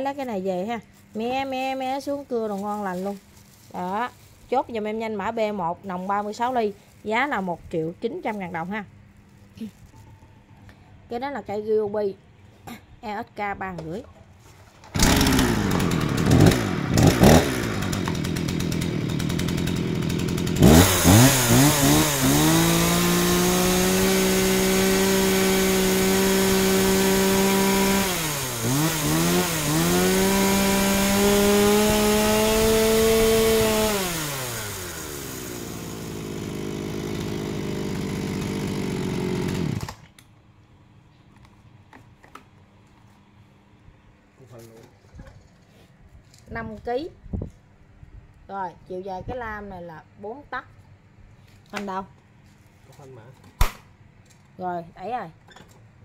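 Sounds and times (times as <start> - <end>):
chainsaw engine idling and revving: 14.9 - 40.1.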